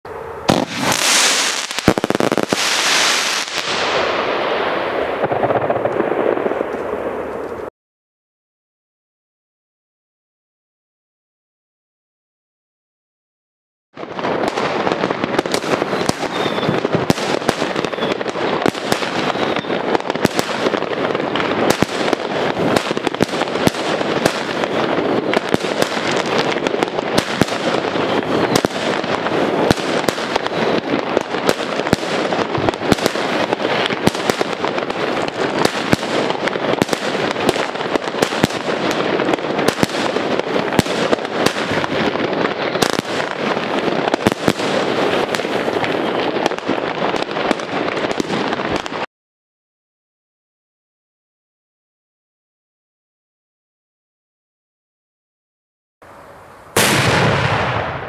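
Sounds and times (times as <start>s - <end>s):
fireworks bangs: 0.1s - 7.7s, 14.0s - 49.1s, 56.7s - 58.0s
fireworks crackle: 0.2s - 7.7s, 14.0s - 49.1s, 56.3s - 58.0s.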